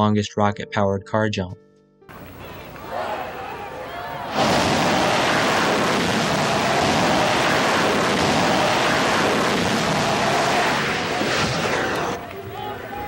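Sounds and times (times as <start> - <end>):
rocket motor blast: 4.3 - 12.2.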